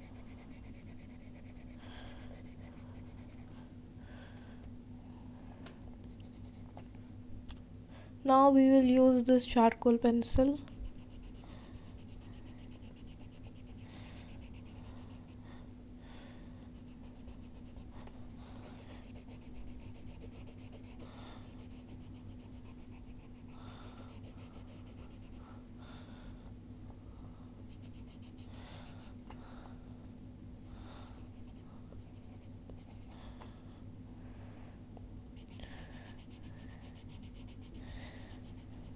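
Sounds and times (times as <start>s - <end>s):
charcoal pencil scratching on paper: 0.0s - 3.5s, 6.1s - 6.7s, 10.6s - 15.4s, 16.8s - 17.9s, 18.7s - 25.4s, 27.7s - 29.1s, 35.4s - 38.9s
steady low hum: 0.0s - 38.9s.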